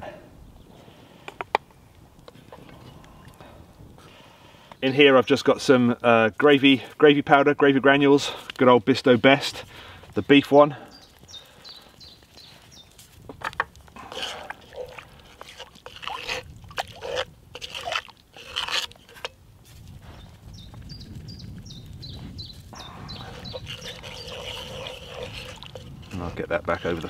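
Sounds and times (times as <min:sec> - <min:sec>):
wooden spoon scraping pot: 0:13.4 - 0:19.4, 0:22.8 - 0:27.0.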